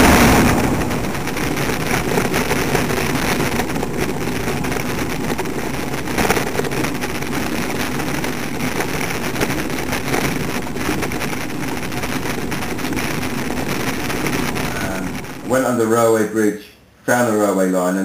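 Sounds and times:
wind rumbling on microphone: 0.0 - 15.6.

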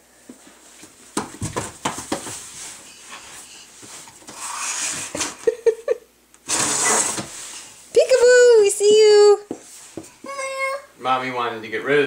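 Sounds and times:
cardboard rustling and scraping: 6.5 - 7.7.

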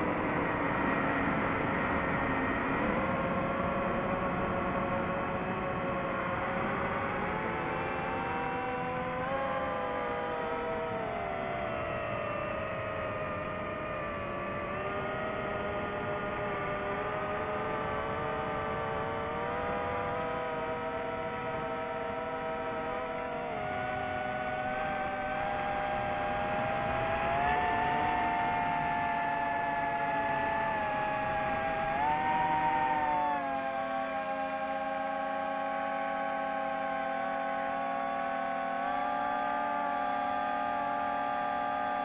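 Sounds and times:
drone propellers whining: 17.4 - 42.0.

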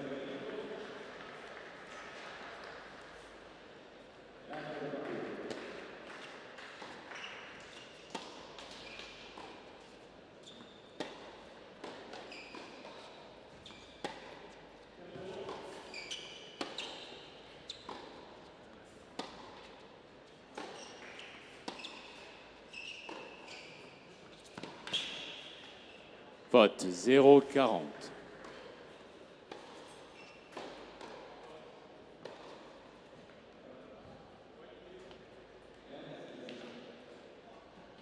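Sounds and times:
shoes squeaking on court: 7.1 - 14.6, 15.2 - 26.1, 28.4 - 31.2
tennis ball bouncing: 18.9 - 19.7, 30.5 - 31.3.

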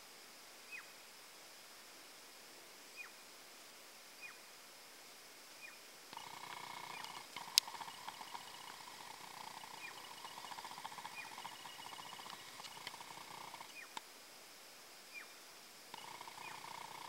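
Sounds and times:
fast pulsing trill: 7.4 - 13.7.

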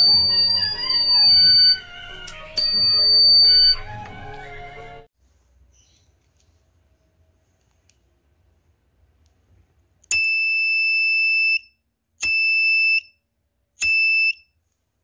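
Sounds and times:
high electronic buzzer beep: 0.0 - 1.8, 2.6 - 3.8.

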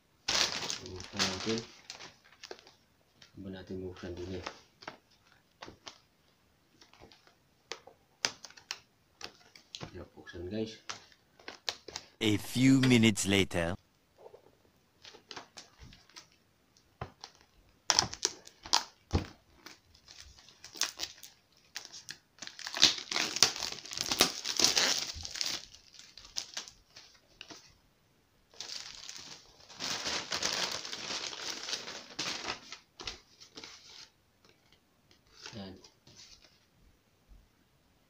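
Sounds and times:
plastic wrap crinkling: 0.3 - 2.8, 19.6 - 27.5, 28.6 - 34.0.

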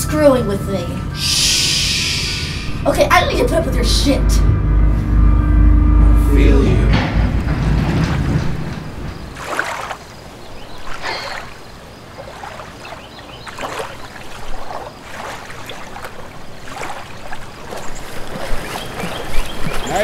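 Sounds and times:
low rumble: 0.0 - 9.5
water lapping and splashing: 7.7 - 20.0.

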